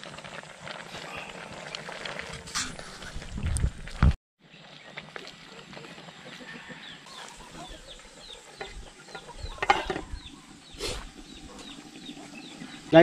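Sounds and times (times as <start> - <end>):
food simmering in wok: 0.0 - 13.0
wooden spatulas stirring: 8.4 - 10.2
glass lid clattering on wok: 9.2 - 10.2.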